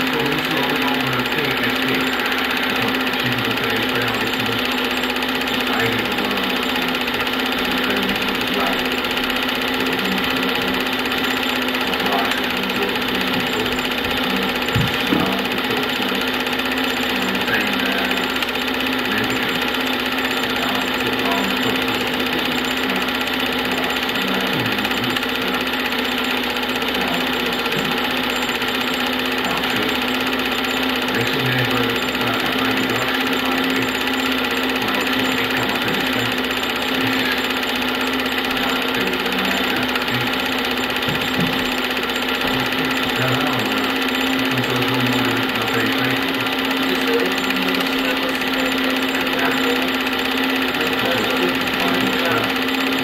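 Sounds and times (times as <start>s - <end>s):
film projector whirring: 0.0s - 53.0s.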